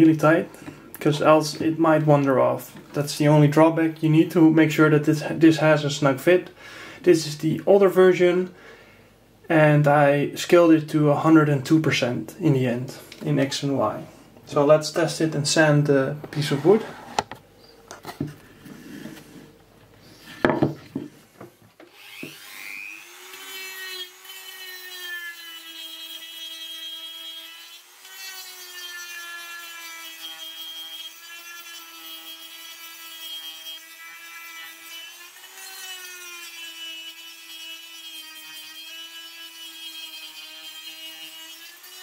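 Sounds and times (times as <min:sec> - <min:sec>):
rotary tool sanding wood: 0:21.9 - 0:42.0.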